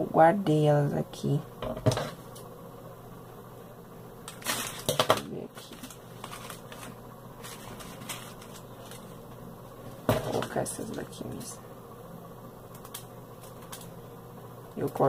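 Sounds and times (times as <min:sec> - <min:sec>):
hands rummaging in plastic box: 0:04.3 - 0:09.1.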